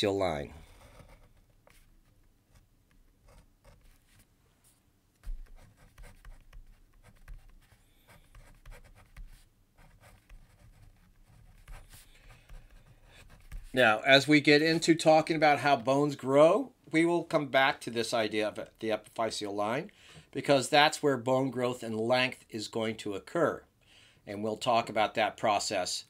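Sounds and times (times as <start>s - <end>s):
pen scratching on paper: 0.6s - 4.2s, 5.2s - 13.8s.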